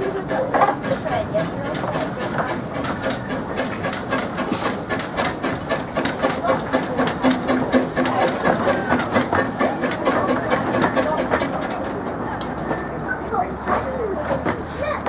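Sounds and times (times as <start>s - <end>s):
steam hissing: 0.0s - 11.9s
steam locomotive exhaust chuffing: 0.0s - 15.0s.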